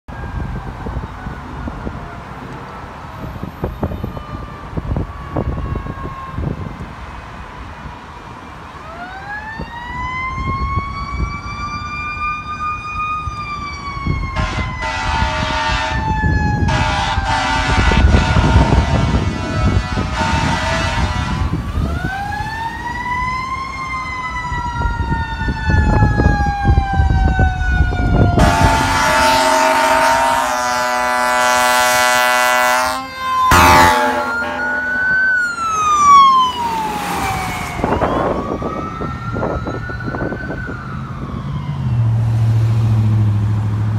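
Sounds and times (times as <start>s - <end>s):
fire engine sirens wailing: 0.1s - 43.9s
horn blasts: 14.4s - 16.1s, 16.7s - 21.7s, 28.4s - 35.2s
heavy engine drone: 28.4s - 38.8s.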